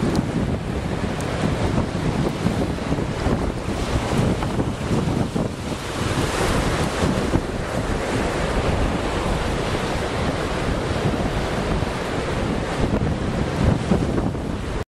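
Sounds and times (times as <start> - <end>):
sea washing: 0.0 - 14.8
wind buffeting microphone: 0.0 - 14.8.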